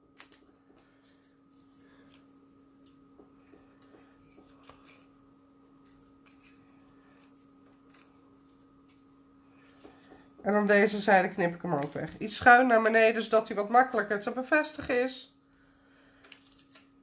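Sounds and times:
low steady hum: 0.0 - 17.0
scissors cutting thin card: 5.8 - 9.8.

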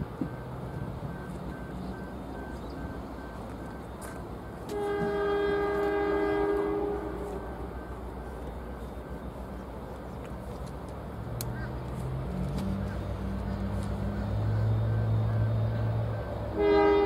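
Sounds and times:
train horn blast: 4.6 - 8.0, 16.5 - 17.0.

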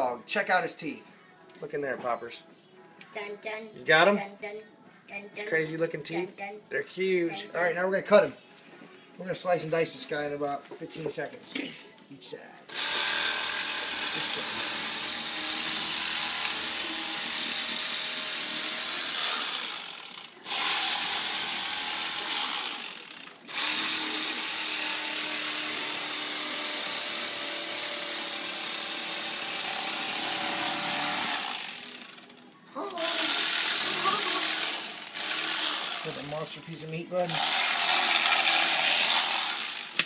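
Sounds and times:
electric fillet knife motor buzz: 12.7 - 32.4, 33.0 - 36.3, 37.3 - 40.0.

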